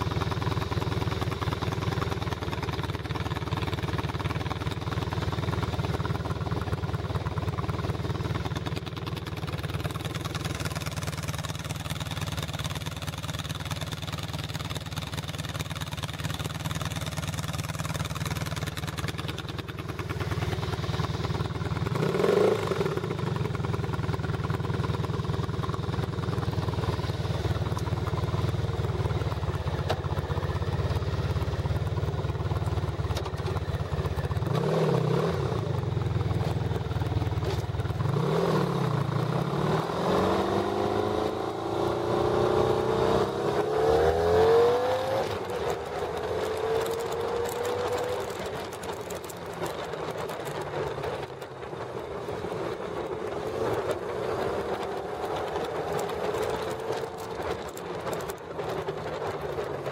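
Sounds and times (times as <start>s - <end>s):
motorcycle engine revving and accelerating: 14.9s - 51.8s, 52.6s - 59.9s.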